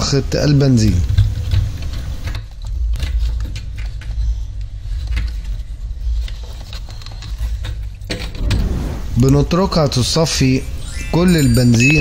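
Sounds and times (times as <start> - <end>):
steady low rumble: 2.6 - 11.4.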